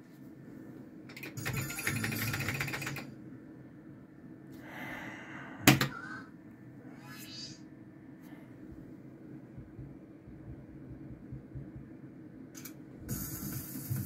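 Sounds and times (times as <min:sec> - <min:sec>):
gaming machine clicking: 0:01.1 - 0:03.1.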